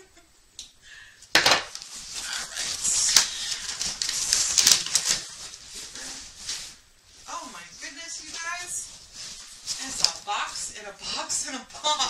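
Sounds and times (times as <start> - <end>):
cardboard tearing: 1.7 - 6.1
packaging rustling and crackling: 1.7 - 10.8
sharp paper snaps: 3.1 - 5.3.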